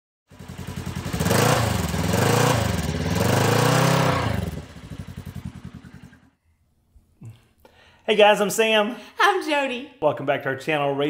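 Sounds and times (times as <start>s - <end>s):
engine revving and idling: 0.3s - 6.4s.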